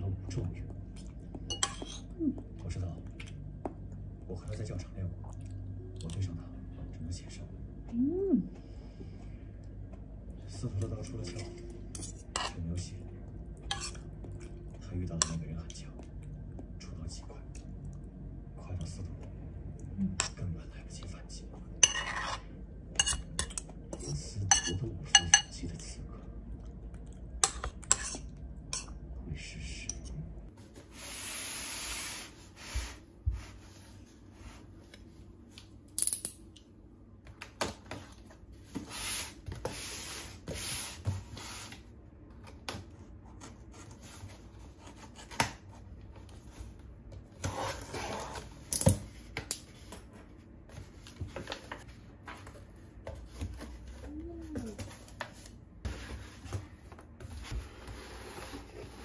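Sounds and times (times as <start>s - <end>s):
cutlery clinking on ceramic plate: 1.5s - 2.1s, 23.0s - 25.6s.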